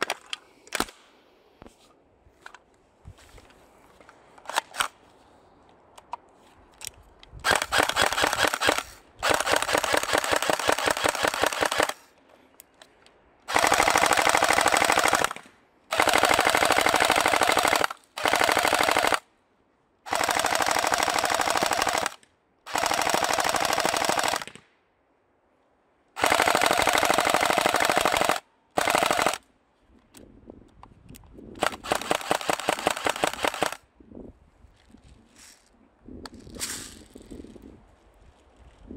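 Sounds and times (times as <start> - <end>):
airsoft rifles firing: 7.4 - 12.1, 13.5 - 19.2, 20.1 - 24.7, 26.2 - 29.4, 31.6 - 33.8.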